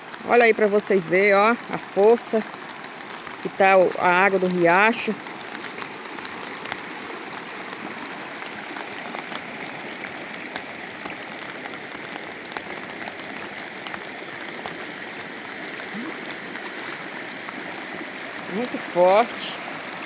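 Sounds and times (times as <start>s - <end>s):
floodwater rushing: 0.0s - 20.0s.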